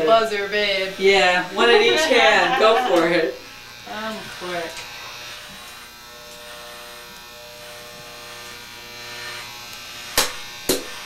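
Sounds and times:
hair clippers buzzing: 0.0s - 11.0s.

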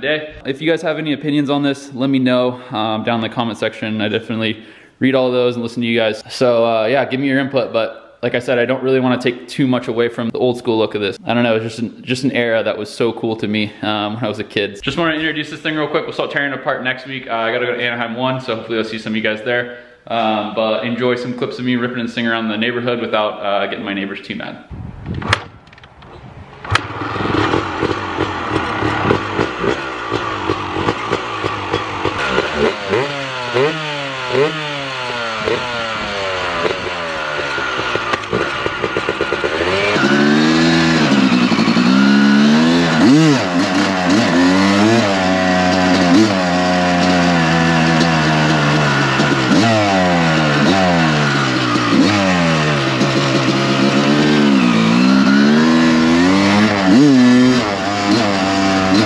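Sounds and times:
two-stroke engine revving: 26.7s - 59.0s.

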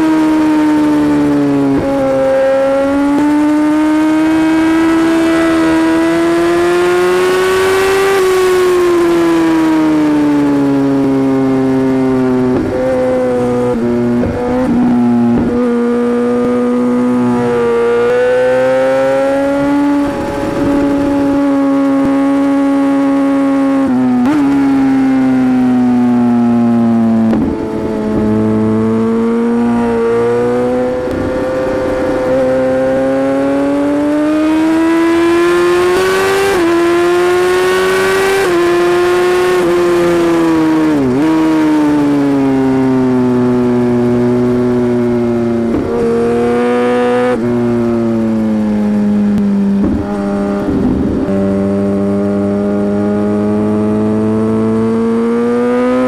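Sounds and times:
motorcycle engine at high revs: 0.0s - 56.0s.

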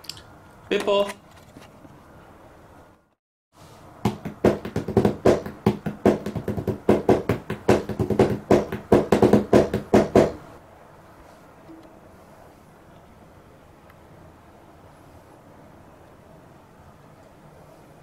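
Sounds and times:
hands drumming on cardboard box: 4.0s - 10.4s.

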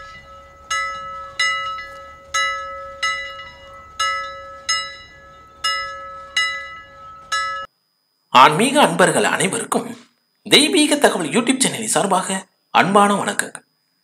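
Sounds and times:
bell struck repeatedly: 0.0s - 7.7s
low bell hum: 0.0s - 8.3s.

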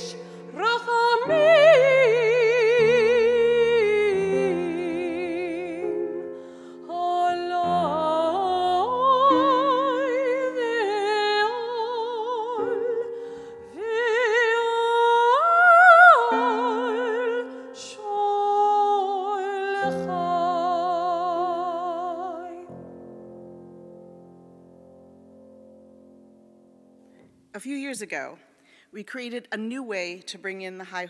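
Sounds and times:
woman singing with vibrato: 0.0s - 6.1s, 6.8s - 22.7s.

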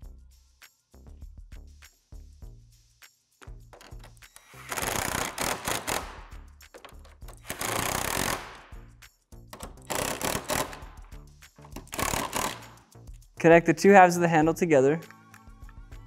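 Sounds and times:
background music: 0.0s - 16.0s
cordless power driver driving bolts: 3.8s - 8.7s, 9.6s - 12.8s.

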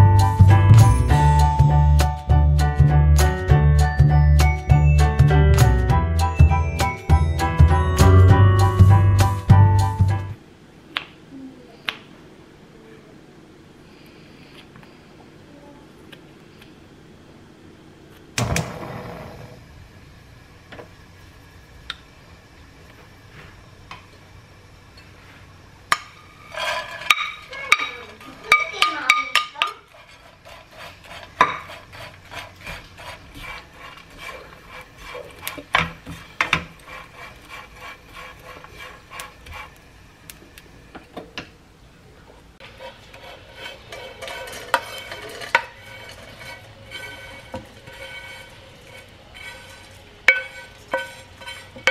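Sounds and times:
fish scraped into mesh strainer: 42.7s - 51.8s.

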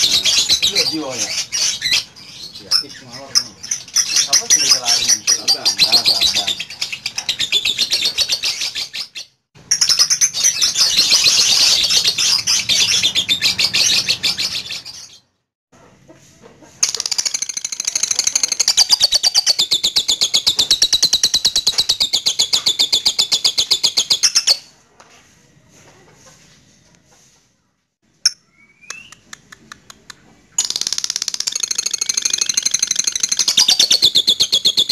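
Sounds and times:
lovebird chattering: 0.0s - 15.2s, 16.8s - 24.6s, 30.6s - 34.9s.

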